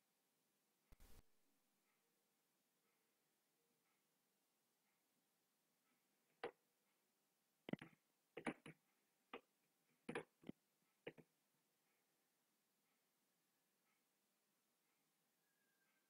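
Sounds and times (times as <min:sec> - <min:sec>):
mouse buttons clicking: 0:07.7 - 0:08.8.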